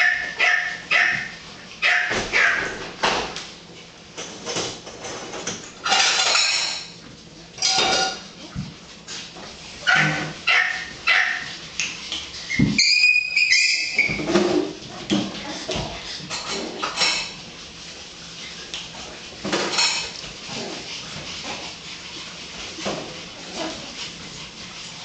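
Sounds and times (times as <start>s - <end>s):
high-pitched puppy yelp: 0.0s - 2.7s, 9.8s - 11.5s, 12.5s - 14.2s
puppies yipping and barking: 0.0s - 2.8s, 9.8s - 14.3s.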